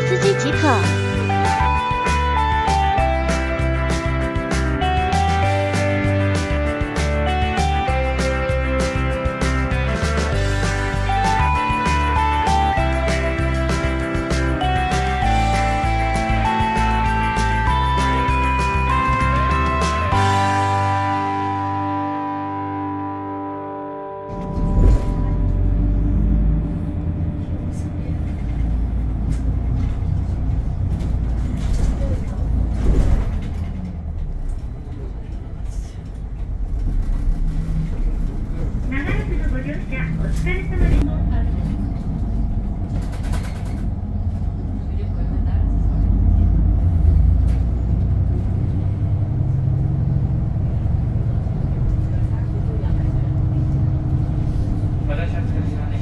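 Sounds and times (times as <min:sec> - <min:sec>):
bus engine and road rumble: 0:00.0 - 0:56.0.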